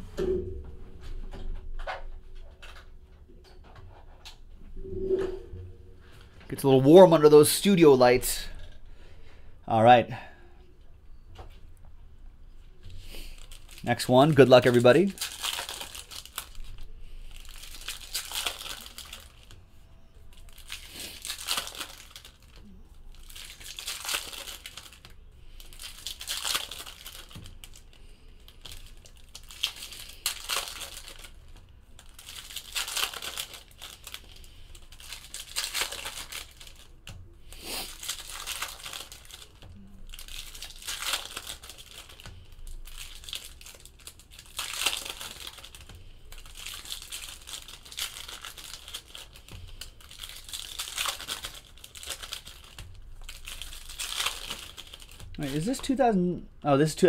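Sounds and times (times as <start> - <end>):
foil wrappers tearing and crinkling: 12.9 - 56.0.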